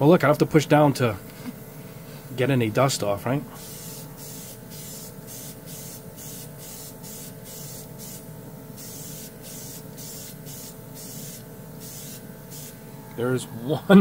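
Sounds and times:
air compressor running: 3.5 - 13.2
airbrush hissing bursts: 3.6 - 12.9.

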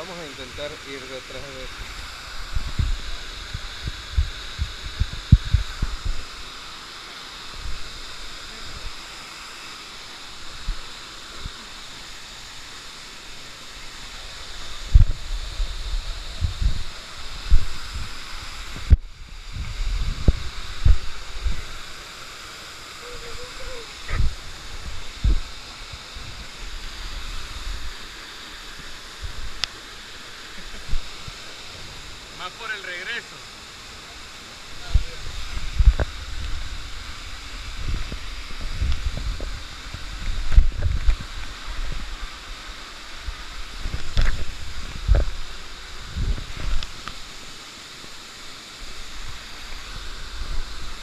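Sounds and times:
waterfall rushing: 0.0 - 51.0
wind buffeting microphone: 1.7 - 6.3, 14.7 - 21.8, 23.2 - 28.0, 34.8 - 42.3, 43.2 - 47.0.

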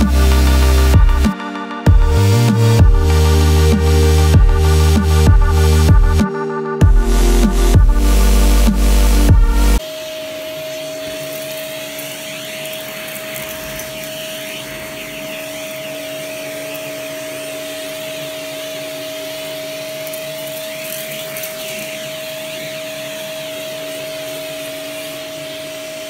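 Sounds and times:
vacuum cleaner motor whine: 9.8 - 26.0.

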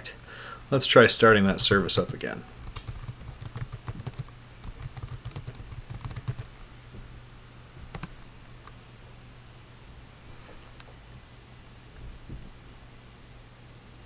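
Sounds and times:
typing on a keyboard: 1.6 - 6.5, 7.9 - 8.2.

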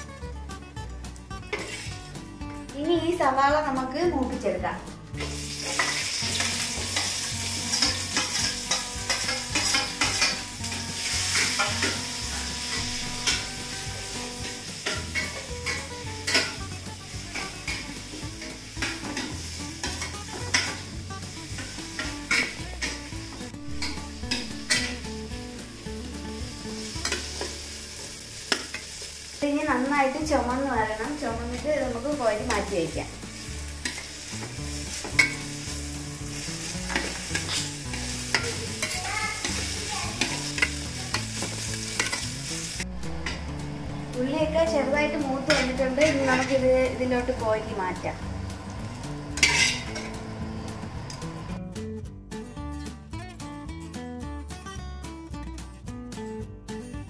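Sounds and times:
onions sizzling in a pan: 0.0 - 51.6
metal spatula scraping a pan: 1.4 - 2.1, 5.2 - 25.4, 26.2 - 29.1, 33.3 - 43.4, 45.2 - 47.0, 49.1 - 50.3.

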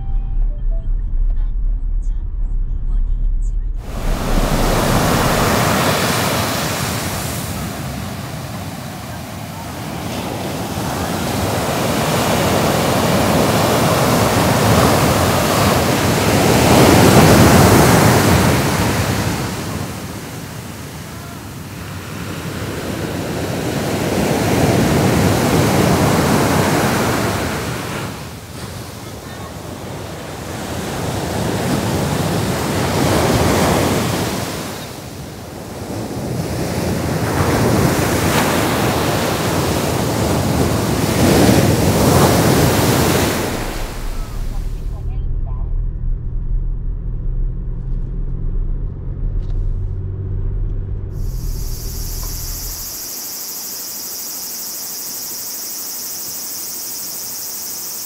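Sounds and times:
wind buffeting microphone: 0.9 - 21.0
wind gusting through pine trees: 3.9 - 44.6, 51.2 - 58.0.

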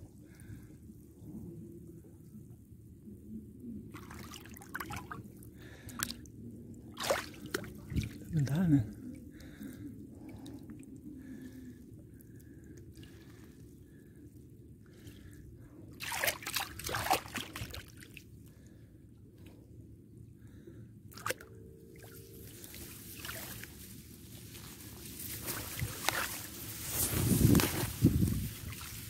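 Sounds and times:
water dripping and splashing: 3.9 - 6.2, 6.9 - 8.6, 16.0 - 18.2, 21.2 - 26.8, 27.5 - 29.0.

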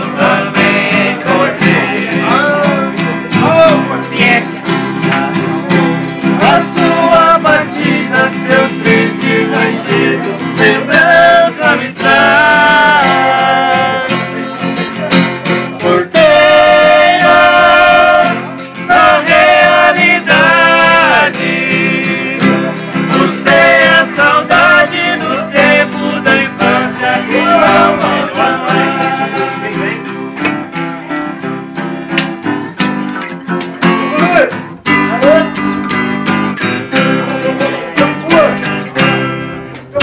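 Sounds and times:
men singing together: 0.0 - 4.7, 6.2 - 14.7, 15.5 - 30.3
acoustic guitars playing: 0.0 - 40.0.

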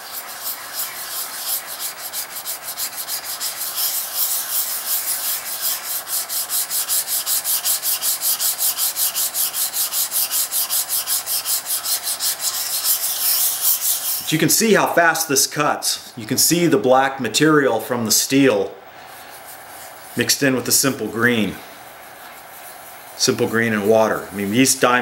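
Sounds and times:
blade scraping on sharpening stone: 0.0 - 14.3.

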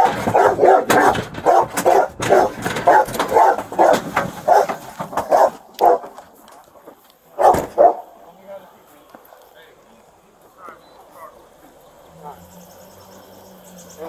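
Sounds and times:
dog barking: 0.0 - 6.1, 7.4 - 8.1, 12.1 - 12.5.

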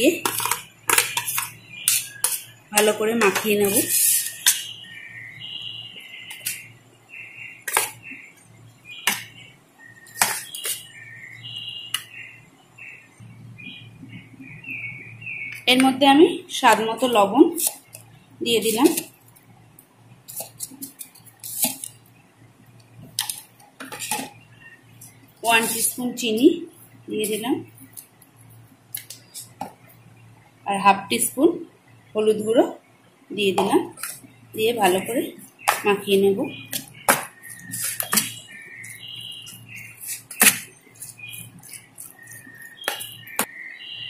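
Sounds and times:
metal spoon scraping steel bowl: 0.2 - 4.6, 36.6 - 43.4.

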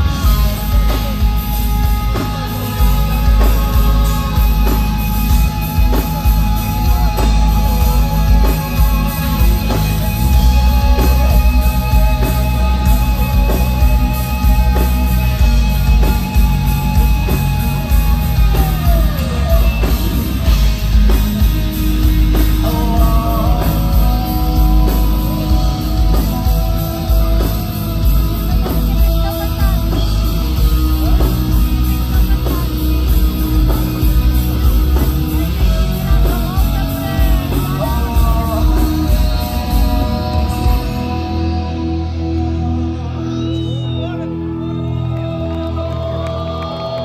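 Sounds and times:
bending lead guitar line: 0.0 - 47.0
heavy metal band playing live: 0.0 - 47.0.

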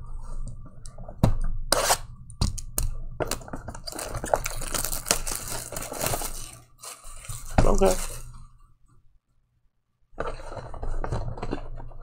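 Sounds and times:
plastic wrap crackling: 2.6 - 8.5.

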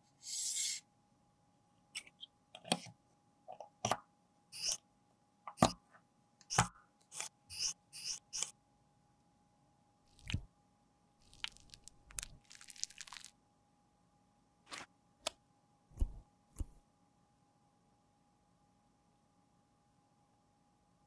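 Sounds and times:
scratchy rubbing and crackling: 11.2 - 13.3.

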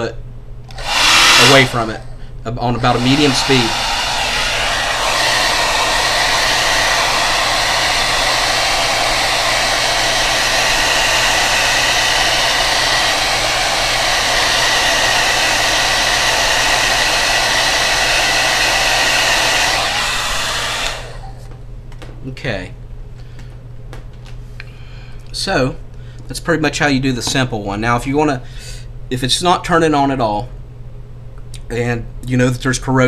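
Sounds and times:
hair dryer running: 0.7 - 2.0, 2.7 - 21.5.

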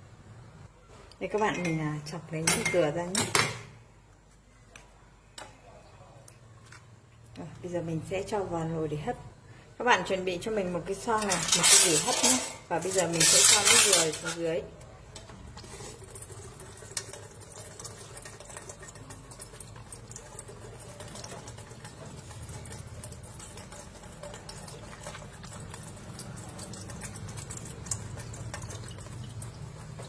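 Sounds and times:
water trickling into metal pot: 10.0 - 30.0.

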